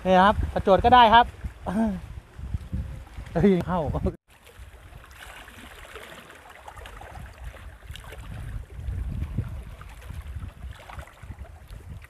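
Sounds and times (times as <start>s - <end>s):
faint water patter: 0.0s - 12.0s
wind rumbling on microphone: 0.0s - 12.0s
small waves lapping: 0.4s - 3.6s, 4.3s - 12.0s.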